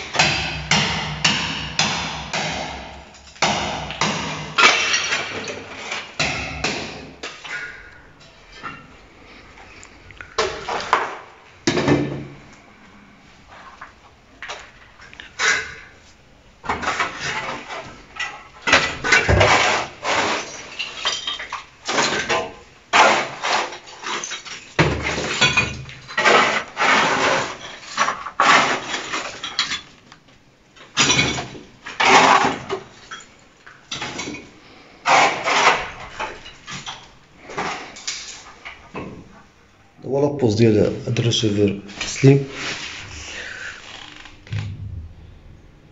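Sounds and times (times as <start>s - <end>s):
debris clattering: 3.1s - 8.9s, 16.6s - 30.0s
shovel scraping rubble: 3.9s - 7.8s, 16.6s - 29.9s, 31.0s - 33.3s, 33.9s - 38.6s
heavy thump: 44.4s - 45.9s.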